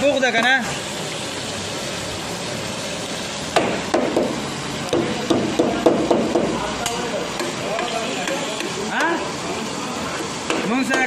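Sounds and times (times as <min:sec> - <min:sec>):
metal spatula knocking on steel: 0:05.0 - 0:09.2.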